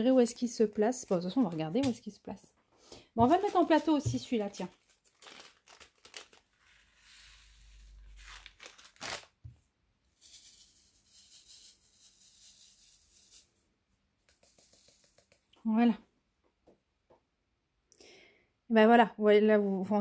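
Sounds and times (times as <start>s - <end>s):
plastic bag crinkling: 3.2s - 6.6s, 8.0s - 9.4s.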